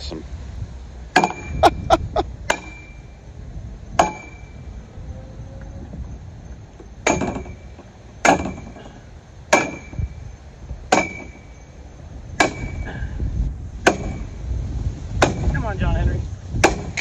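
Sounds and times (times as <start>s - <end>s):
sledgehammer striking metal pole: 1.1s - 1.6s, 2.5s - 3.0s, 4.0s - 4.5s, 7.0s - 8.8s, 9.5s - 10.2s, 10.9s - 11.5s, 12.4s - 13.0s, 13.8s - 14.3s, 15.2s - 15.5s
metallic ring: 2.5s - 3.2s, 4.0s - 4.7s.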